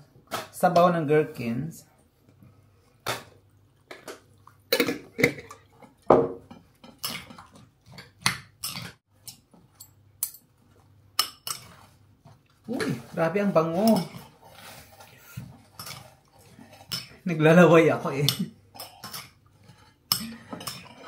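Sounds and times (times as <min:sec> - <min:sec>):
metal spoons clinking on ceramic bowl: 0:18.2 - 0:19.4.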